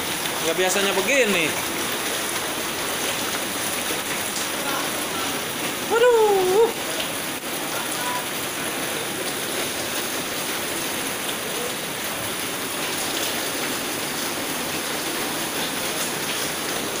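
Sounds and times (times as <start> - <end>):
rain falling on water: 0.0 - 17.0.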